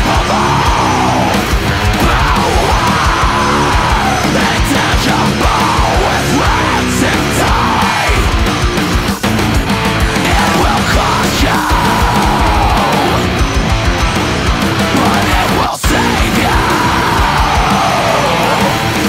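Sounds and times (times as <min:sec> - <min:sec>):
heavy metal band playing: 0:00.0 - 0:19.0
rapid kick drum strokes: 0:00.0 - 0:19.0.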